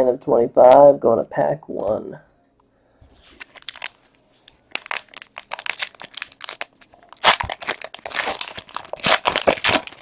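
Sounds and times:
foil wrapper crinkling: 3.2s - 10.0s.

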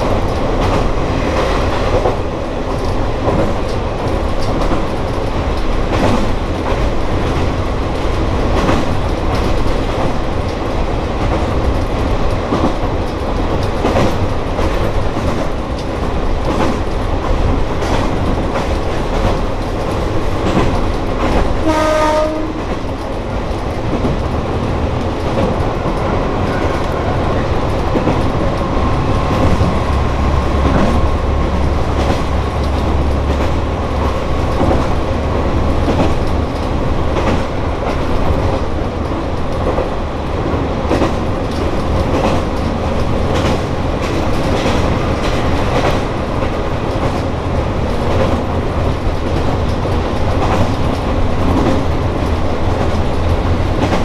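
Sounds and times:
diesel railcar engine drone: 0.0s - 54.0s
wheels clicking over rail joints: 0.0s - 54.0s
train horn blast: 21.6s - 22.7s, 25.9s - 27.6s.

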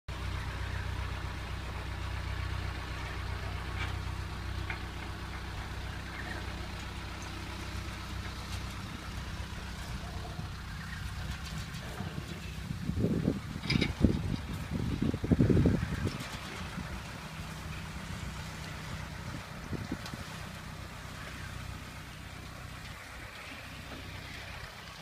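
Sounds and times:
vehicle engine idling: 0.1s - 25.0s.

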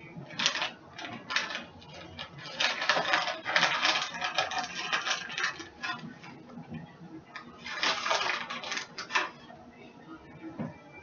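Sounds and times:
kitchen handling crackles and clicks: 0.3s - 6.3s, 7.3s - 9.4s.

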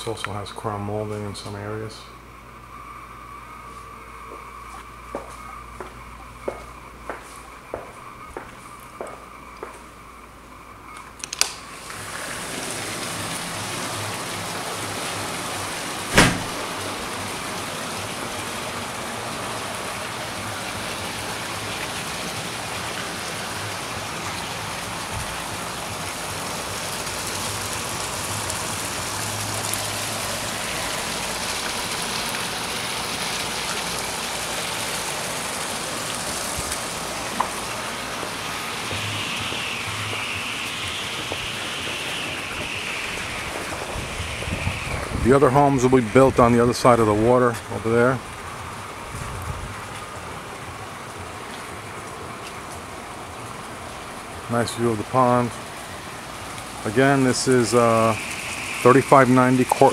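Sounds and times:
rain falling: 5.0s - 59.9s
sharp click: 11.2s - 11.6s
loud knock: 16.1s - 16.6s.

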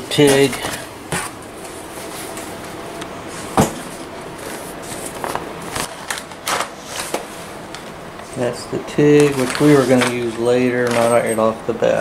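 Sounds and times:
padded pouch handling noise: 9.2s - 11.3s.

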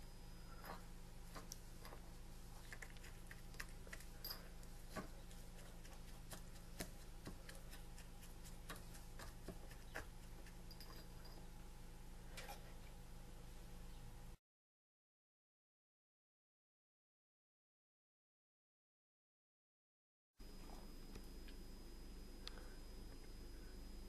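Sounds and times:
steady low hum: 0.0s - 14.4s, 20.4s - 24.0s.

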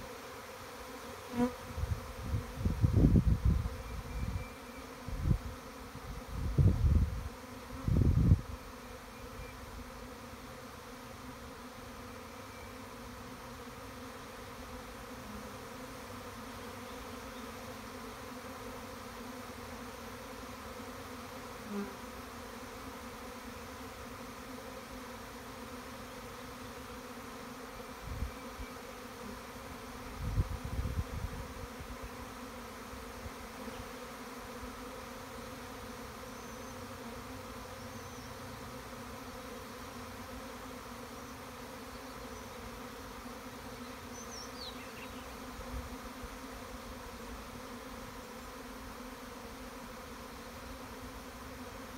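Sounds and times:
honeybee swarm humming: 0.0s - 51.9s.

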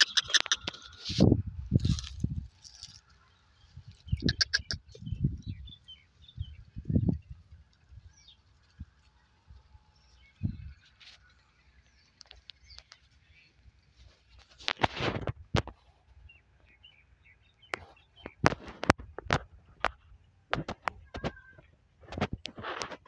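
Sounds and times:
small birds chirping: 0.0s - 14.8s, 15.6s - 22.5s
dry stalks rustling and crackling: 0.1s - 23.0s
wind rumble on microphone: 1.0s - 3.0s, 3.6s - 10.9s.

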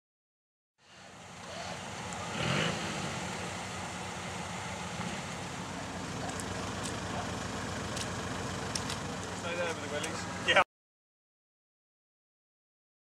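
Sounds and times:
vehicle engine running: 0.8s - 10.6s.

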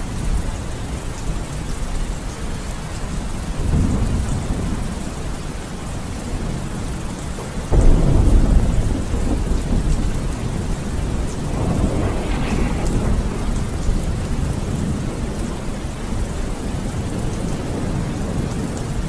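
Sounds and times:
low rumbling thunder: 0.0s - 19.0s
steady rain: 0.0s - 19.0s
loud thunderclap: 3.6s - 5.0s, 7.6s - 18.7s.

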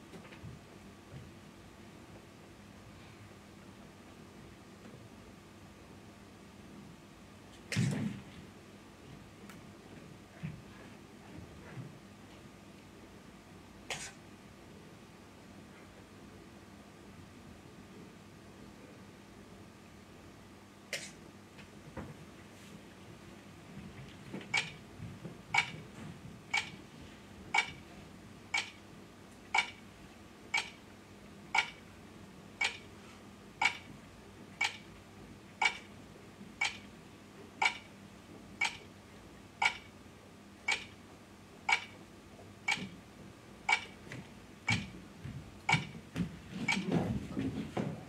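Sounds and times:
clock ticking: 24.5s - 24.8s, 25.5s - 25.8s, 26.5s - 26.8s, 27.5s - 27.8s, 28.5s - 28.8s, 29.5s - 29.8s, 30.5s - 30.8s, 31.5s - 31.8s, 32.6s - 32.9s, 33.6s - 33.9s, 34.6s - 34.9s, 35.6s - 35.9s, 36.6s - 36.9s, 37.6s - 37.9s, 38.6s - 38.9s, 39.6s - 39.9s, 40.6s - 41.0s, 41.7s - 42.0s, 42.6s - 43.0s, 43.7s - 44.0s, 44.6s - 44.9s, 45.7s - 46.0s, 46.7s - 46.9s.

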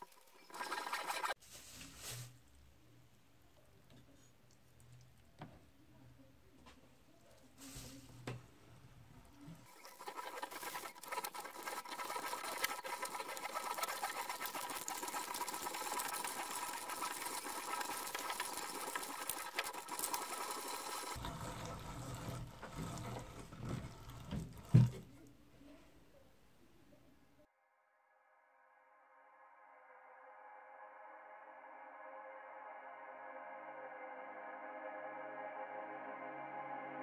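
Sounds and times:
meat grinder clicking and squishing: 9.7s - 24.8s.

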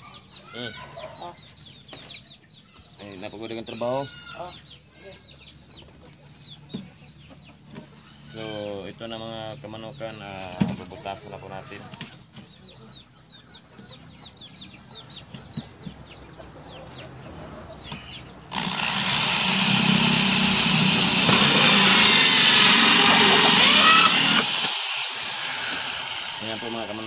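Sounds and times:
electric drill cutting plastic: 18.5s - 27.0s.

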